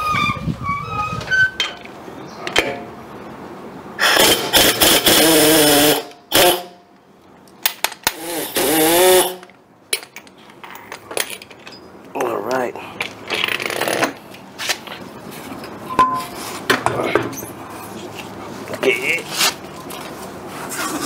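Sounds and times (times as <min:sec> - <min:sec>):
air impact wrench bursts: 0:04.0 - 0:06.8, 0:08.0 - 0:09.4.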